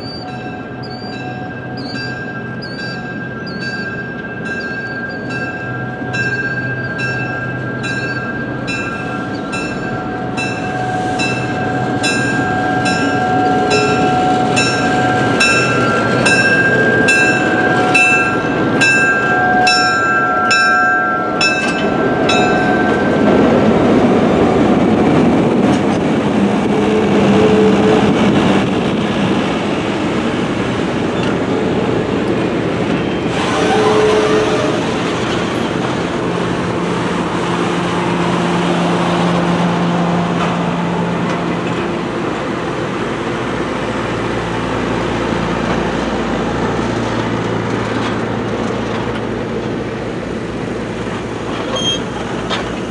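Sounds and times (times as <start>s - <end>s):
train bell ringing: 0.0s - 23.8s
train wheels rumbling on rails: 0.0s - 52.9s
diesel engine: 8.5s - 52.9s.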